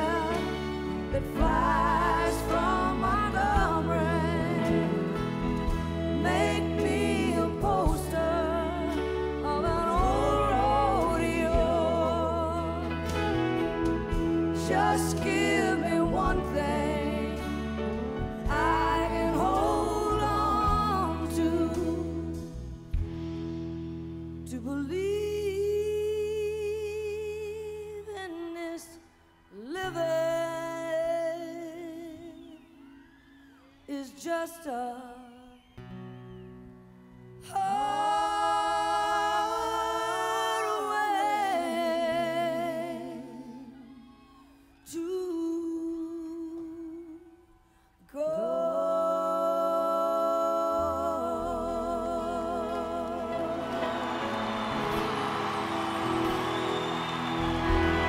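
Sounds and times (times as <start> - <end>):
woman singing with vibrato: 0.0 - 13.2, 14.1 - 22.6, 24.5 - 32.6, 37.4 - 44.2, 48.1 - 54.3
soft band with bass and guitar: 0.0 - 28.4, 49.7 - 58.0.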